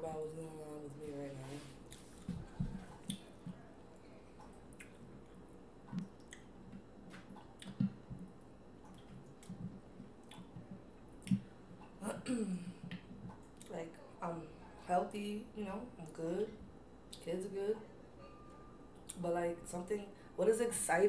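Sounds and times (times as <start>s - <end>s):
wet squishes and drips: 5.9s - 8.2s.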